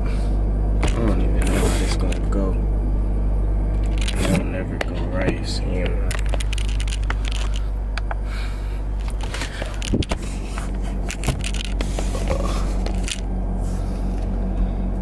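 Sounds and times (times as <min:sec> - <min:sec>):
low car cabin hum: 0:00.0 - 0:15.0
phone handling scraping and clicking: 0:03.8 - 0:05.1, 0:05.8 - 0:08.2, 0:09.0 - 0:13.3.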